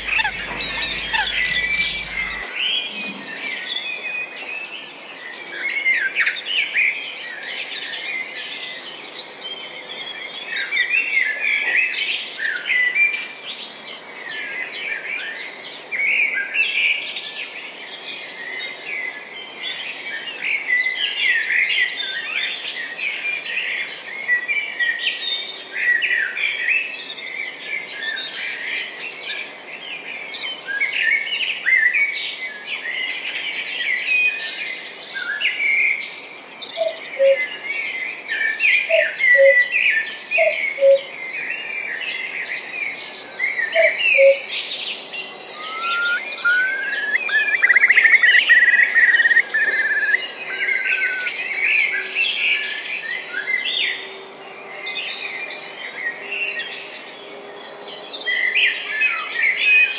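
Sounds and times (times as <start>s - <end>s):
many small birds chirping: 0.0s - 16.6s, 22.2s - 59.9s.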